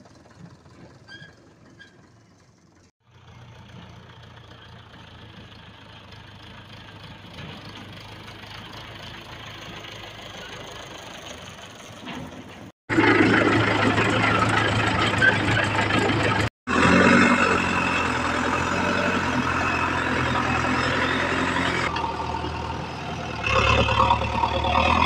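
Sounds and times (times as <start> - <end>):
diesel engines running: 0.0 - 25.0.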